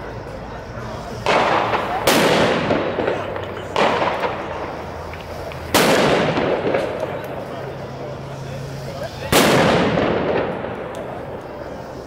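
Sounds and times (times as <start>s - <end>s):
loud firework bangs echoing: 1.2s - 7.4s, 9.2s - 11.4s.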